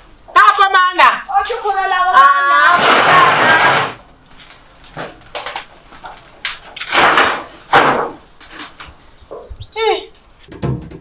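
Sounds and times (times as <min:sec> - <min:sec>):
metal gate scraping and knocking: 0:04.9 - 0:09.5.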